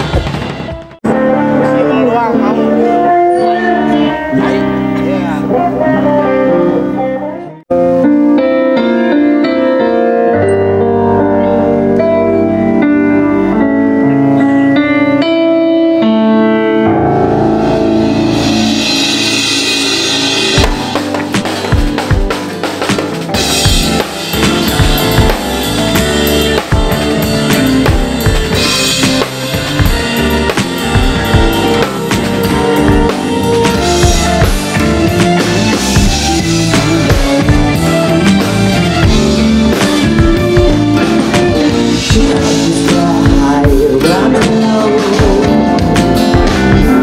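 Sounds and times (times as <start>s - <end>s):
drum kit playing: 0.0s - 6.8s, 16.8s - 47.0s
melody of held notes: 1.0s - 47.0s
cymbal wash: 17.6s - 21.1s.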